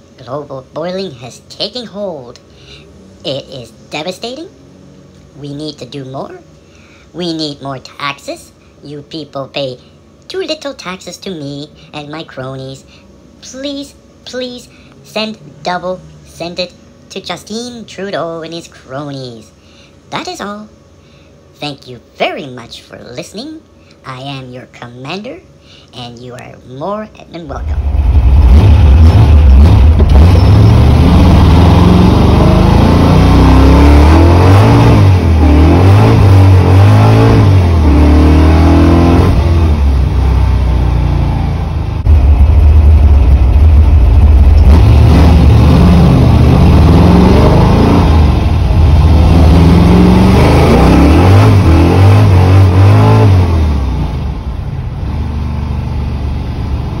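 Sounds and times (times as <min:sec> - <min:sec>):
car engine accelerating: 0:27.6 - 0:57.0.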